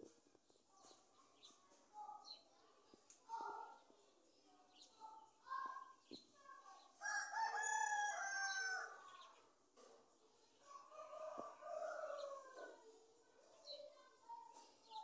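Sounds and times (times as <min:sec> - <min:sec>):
rooster crowing: 0:07.0 - 0:09.0.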